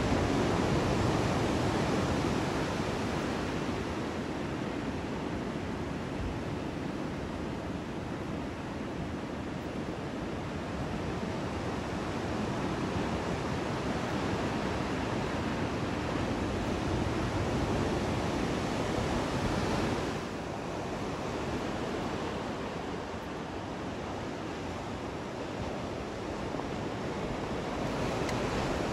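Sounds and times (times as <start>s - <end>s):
ocean surf breaking: 14.2s - 28.9s.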